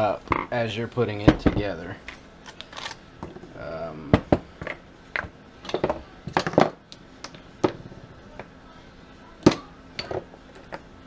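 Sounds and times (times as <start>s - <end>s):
metal parts clinking on workbench: 10.0s - 10.9s.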